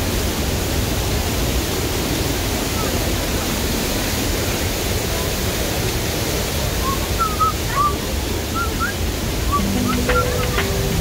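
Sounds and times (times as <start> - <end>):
waterfall rushing: 0.0 - 11.0
background music with held notes: 9.5 - 11.0.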